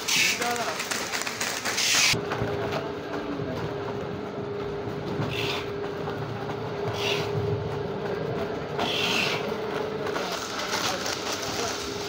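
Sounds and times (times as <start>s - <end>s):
plastic bags crinkling: 0.0s - 2.2s, 10.1s - 12.0s
belt conveyor humming: 0.0s - 12.0s.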